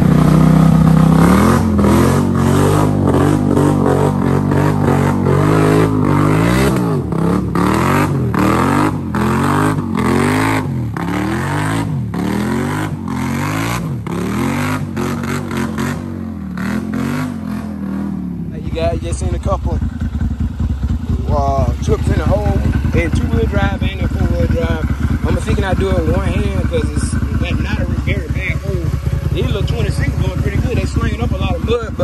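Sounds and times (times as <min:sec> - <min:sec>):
atv engine revving: 0:00.0 - 0:32.0.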